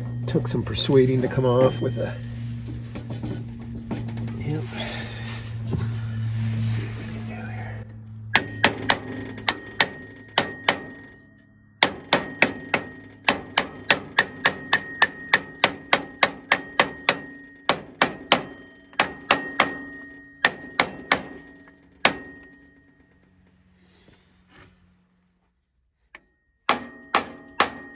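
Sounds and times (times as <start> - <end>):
faint metallic ring: 0.0 - 13.3, 14.7 - 23.7.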